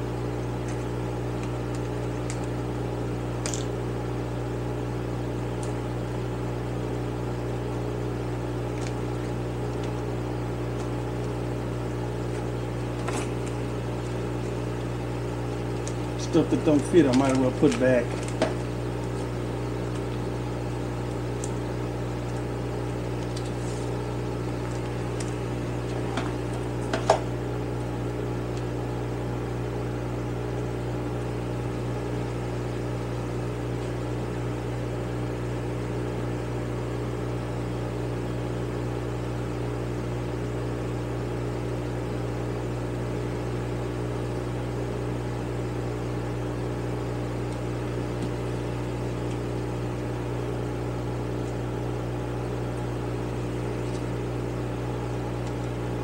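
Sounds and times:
electric fan humming: 0:00.0 - 0:56.0
light clicks of small parts: 0:16.7 - 0:18.5.

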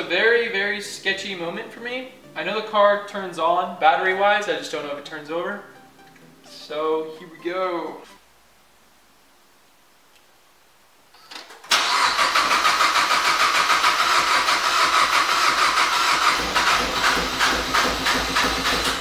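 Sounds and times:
car engine cranking by starter: 0:11.6 - 0:19.0.

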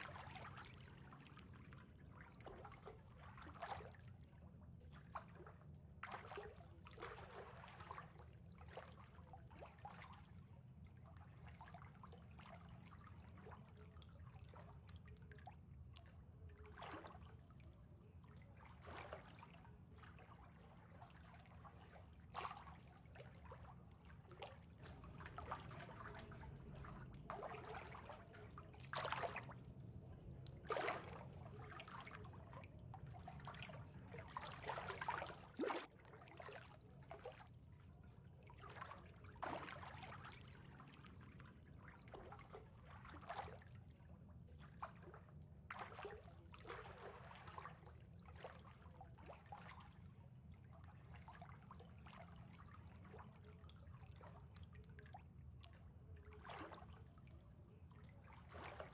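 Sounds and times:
water trickling and splashing: 0:18.4 - 0:41.2.

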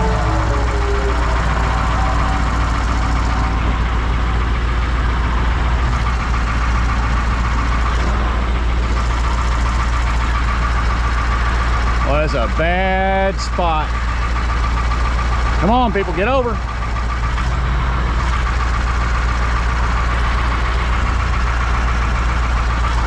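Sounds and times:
truck diesel engine running: 0:00.0 - 0:23.0.

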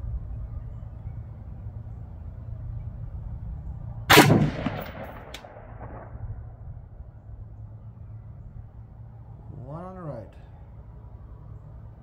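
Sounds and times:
rifle shot with ringing tail: 0:04.1 - 0:06.6.

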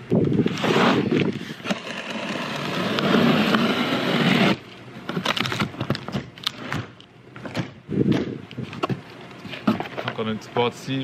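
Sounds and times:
box cutter slicing tape: 0:00.4 - 0:08.4.

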